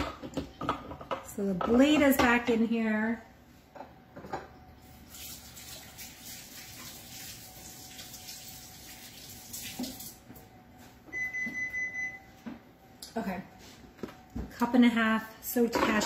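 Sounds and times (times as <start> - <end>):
faucet running water into sink: 5.1 - 10.2.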